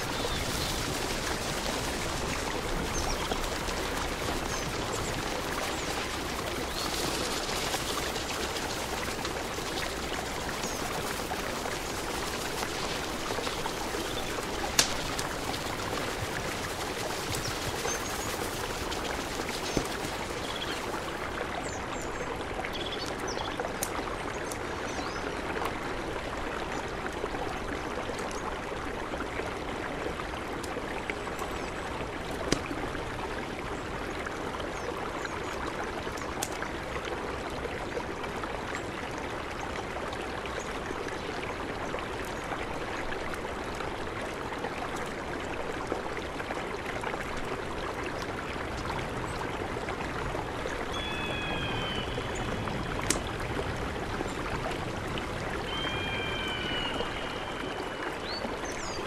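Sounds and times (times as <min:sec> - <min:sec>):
campfire popping and crackling: 0:00.0 - 0:21.6, 0:32.0 - 0:33.4, 0:51.5 - 0:55.7
river rushing: 0:00.0 - 0:22.6, 0:42.2 - 0:59.0.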